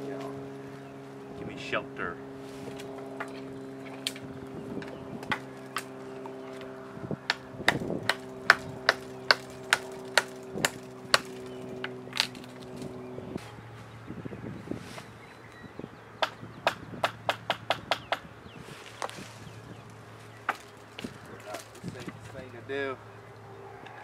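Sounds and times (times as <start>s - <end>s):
steady droning hum: 0.0s - 24.0s
axe chopping wood: 7.3s - 12.5s.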